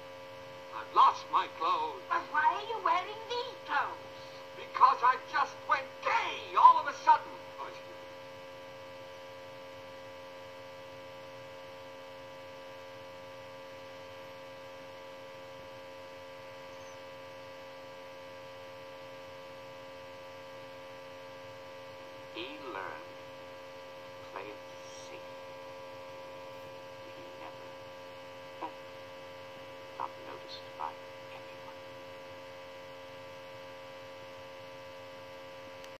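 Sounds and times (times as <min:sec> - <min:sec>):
electrical mains hum: 0:00.0 - 0:36.0.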